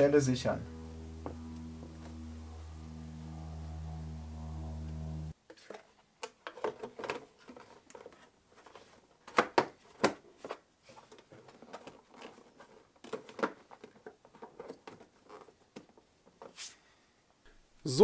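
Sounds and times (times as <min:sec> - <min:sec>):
plastic cover clicks and knocks: 0:13.0 - 0:15.1.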